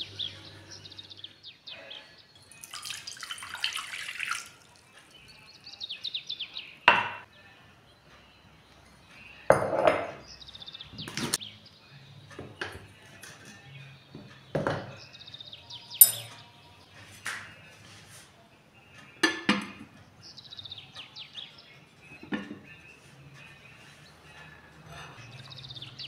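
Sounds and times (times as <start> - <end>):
birds chirping: 0.0 - 17.8, 18.7 - 26.0
water poured into glass bowl: 2.5 - 4.9.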